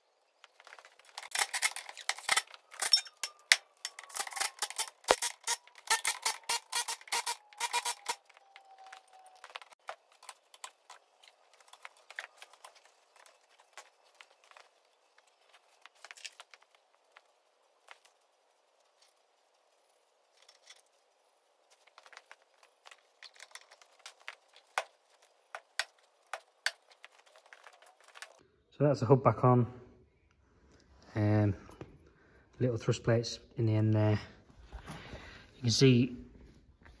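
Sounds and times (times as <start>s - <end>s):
tools clicking and clinking on metal: 1.0s - 14.7s.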